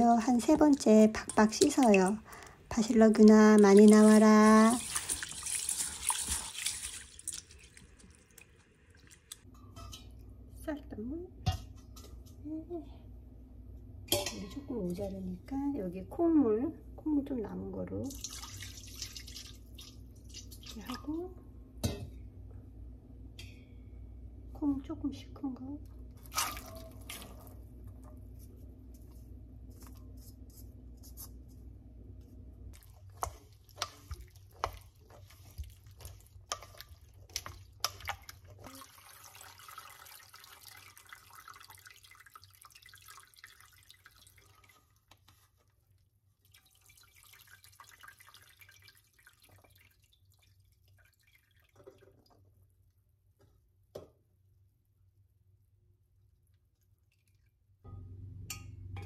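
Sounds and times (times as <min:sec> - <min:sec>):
water trickling into a pot: 0:00.0 - 0:10.2, 0:17.8 - 0:21.3, 0:32.7 - 0:53.1, 0:56.4 - 0:57.9.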